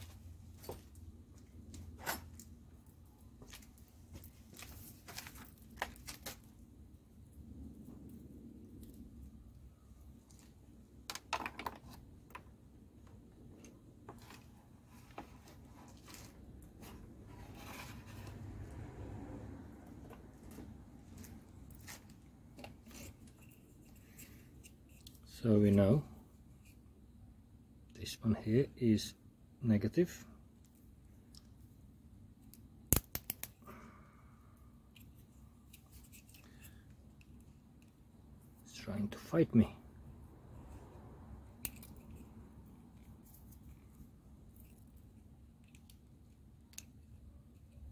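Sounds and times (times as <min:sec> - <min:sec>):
crocodile clips clicking: 0:32.5 - 0:33.6.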